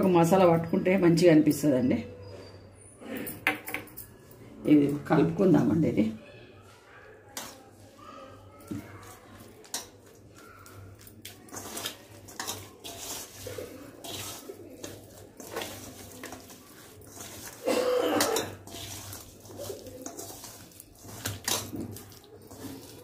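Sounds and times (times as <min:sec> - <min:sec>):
wet squishing by hand: 0:07.2 - 0:23.0.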